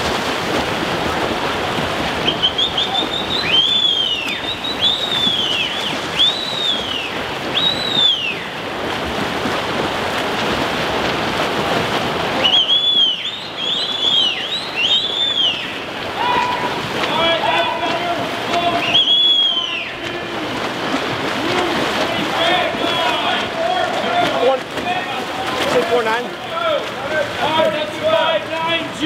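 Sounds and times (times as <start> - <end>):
swimmers splashing in pool: 0.0 - 29.0
bird whistling calls: 2.2 - 8.6, 12.4 - 15.8, 18.8 - 20.0.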